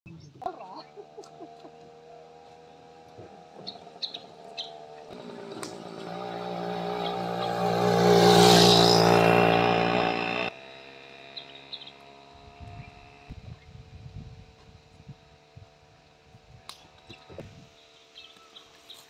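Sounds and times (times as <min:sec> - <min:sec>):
vehicle passing close: 0:01.5 - 0:12.4.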